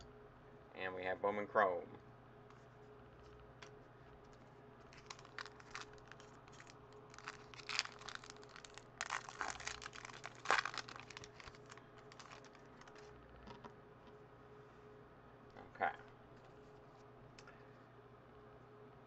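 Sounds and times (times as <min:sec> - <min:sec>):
foil wrapper crinkling and tearing: 0:04.8 - 0:13.2.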